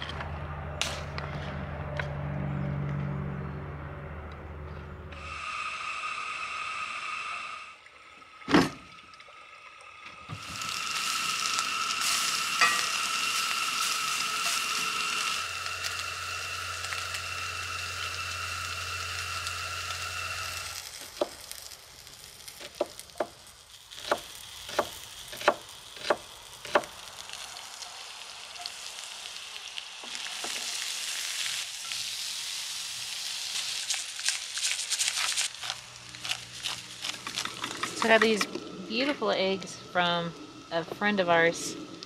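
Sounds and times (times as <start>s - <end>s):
patties sizzling in a skillet: 10.4s - 38.2s
steady hiss: 20.4s - 35.0s
faint high whine: 37.9s - 42.0s.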